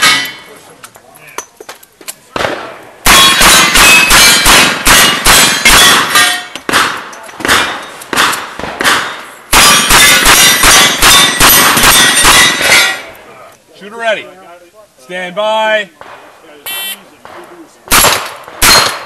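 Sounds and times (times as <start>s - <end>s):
steel targets clanging: 0.0s - 0.6s, 3.2s - 6.6s, 9.1s - 13.2s.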